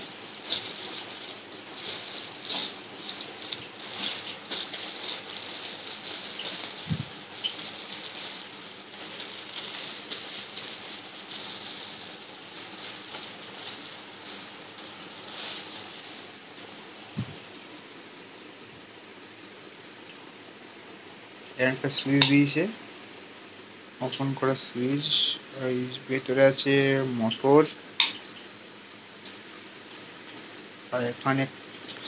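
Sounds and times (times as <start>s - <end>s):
plastic wrapping crinkling: 0.0s - 17.4s.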